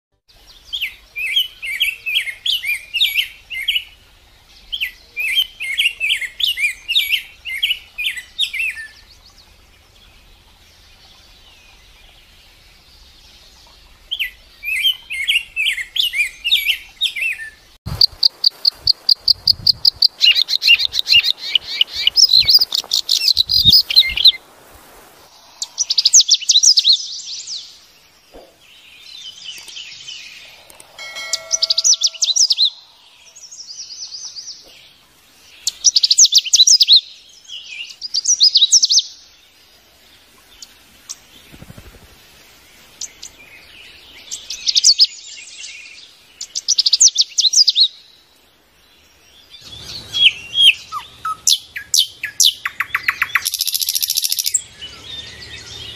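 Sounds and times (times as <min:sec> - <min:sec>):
songbirds chirping: 0:00.2 - 0:55.9
fast high bird trill: 0:17.9 - 0:24.4, 0:30.5 - 0:33.3.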